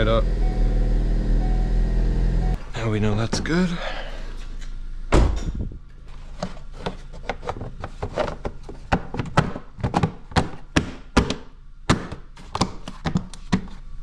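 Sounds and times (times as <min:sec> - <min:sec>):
loud thump: 0:05.1 - 0:05.8.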